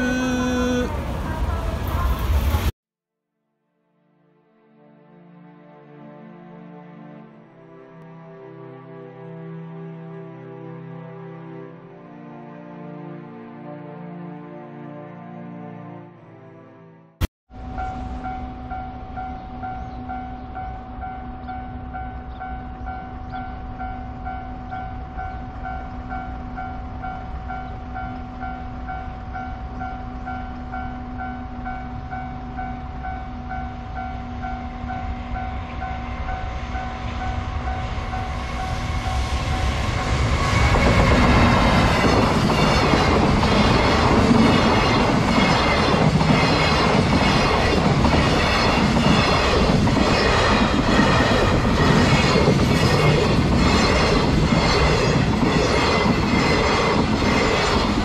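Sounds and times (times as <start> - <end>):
freight train passing: 0.0 - 2.7, 17.5 - 58.0
train wheels clickety-clack: 40.4 - 58.0.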